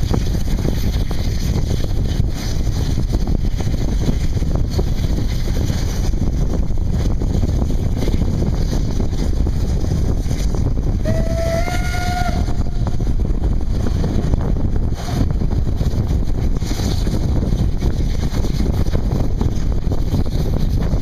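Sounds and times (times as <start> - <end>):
steam train rumble: 0.0 - 21.0
wind buffeting microphone: 0.0 - 21.0
steam locomotive whistle: 11.0 - 13.0.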